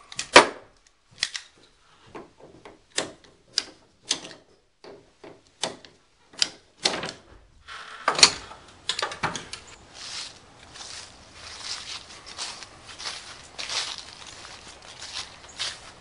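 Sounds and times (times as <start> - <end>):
hand tool clicking: 0.1 - 1.7, 2.9 - 4.4, 5.5 - 7.2
footsteps through dry leaves: 9.7 - 16.0.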